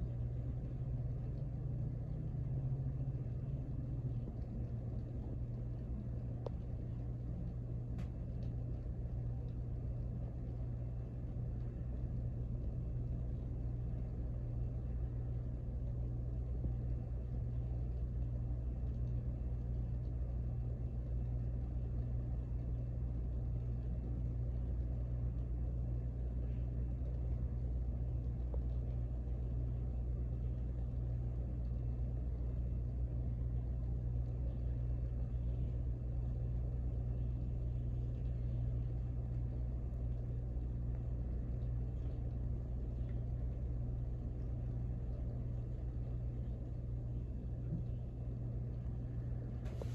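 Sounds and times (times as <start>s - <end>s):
fan motor hum: 0.0s - 49.9s
rush of fan blades: 48.9s - 49.9s.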